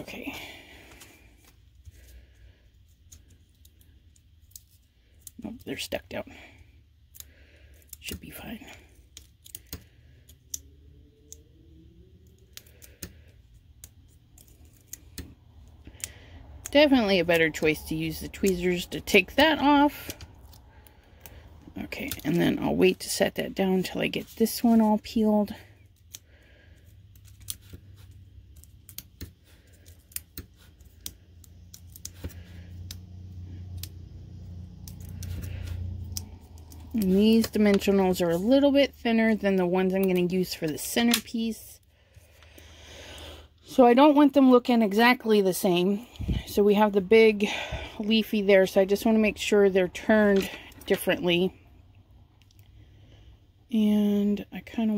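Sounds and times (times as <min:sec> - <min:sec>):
tweezers and paper clicks: 0:07.0 - 0:11.5, 0:27.1 - 0:34.0, 0:34.6 - 0:38.1.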